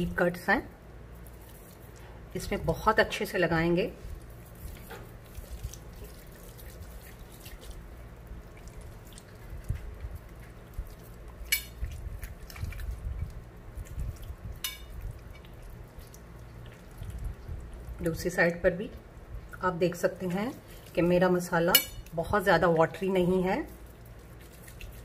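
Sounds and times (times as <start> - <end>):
wet squelching and slapping: 1.2 - 2.6, 4.0 - 18.1, 20.2 - 25.0.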